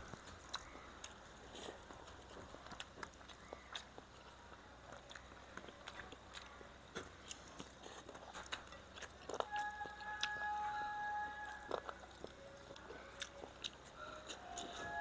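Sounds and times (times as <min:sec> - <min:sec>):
chewing and mouth clicks: 0:00.0 - 0:15.0.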